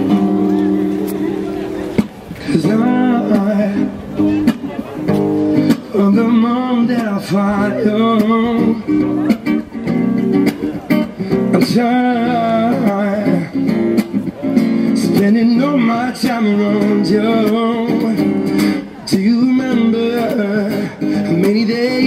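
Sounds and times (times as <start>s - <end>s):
strummed acoustic guitar: 0.0s - 22.0s
person singing: 2.4s - 4.5s.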